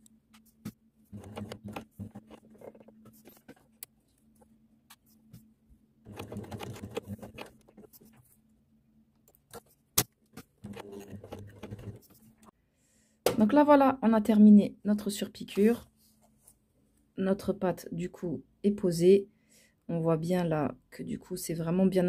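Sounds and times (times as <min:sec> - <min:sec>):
sewing machine stitching: 0:01.1 - 0:03.5, 0:06.0 - 0:08.1, 0:10.6 - 0:12.2.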